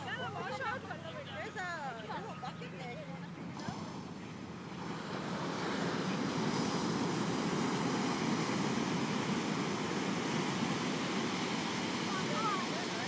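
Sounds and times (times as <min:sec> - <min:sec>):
ocean surf: 0:03.4 - 0:13.0.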